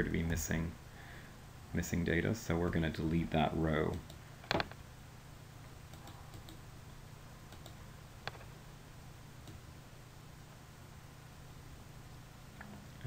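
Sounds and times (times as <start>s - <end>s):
low steady hum: 0.0s - 13.0s
computer mouse clicks: 5.9s - 6.6s, 7.5s - 8.5s, 9.4s - 9.6s.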